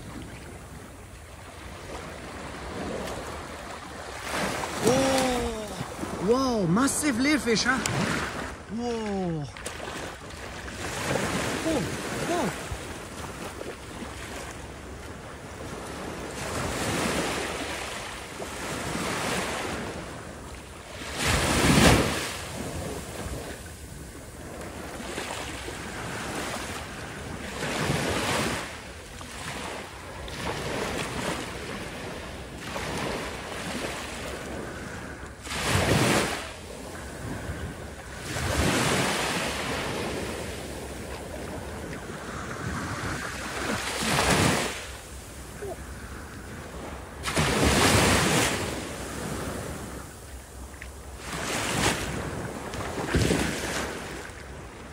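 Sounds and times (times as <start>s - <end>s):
small waves lapping: 0.0s - 54.9s
wind buffeting microphone: 39.9s - 50.2s.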